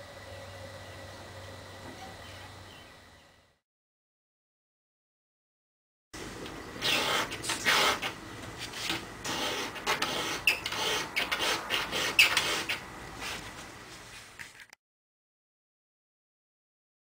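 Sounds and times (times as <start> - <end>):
metal tool scraping aluminum: 8.8 - 12.8.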